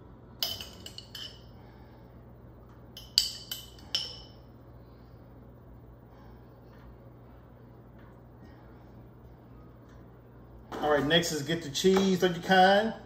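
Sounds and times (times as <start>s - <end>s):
metal spoon clinking on steel pans: 0.4s - 1.5s, 3.0s - 4.4s.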